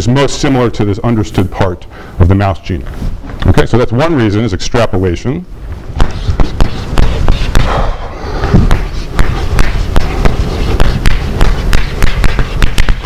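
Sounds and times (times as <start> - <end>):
chalk tapping on blackboard: 6.0 - 7.8, 8.4 - 13.0.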